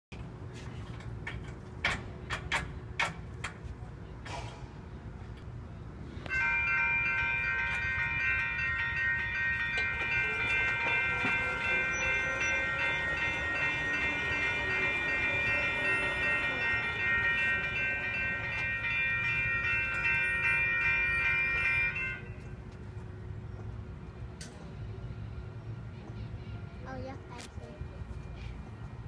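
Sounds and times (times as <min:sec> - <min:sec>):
crossing warning bell ringing: 0:06.2 - 0:23.4.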